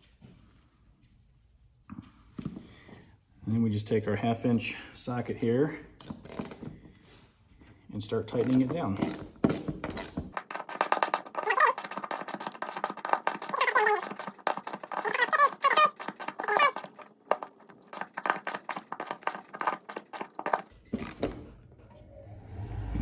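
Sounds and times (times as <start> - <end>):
ratchet wrench clicking: 6.2 - 6.6, 8.3 - 10.3.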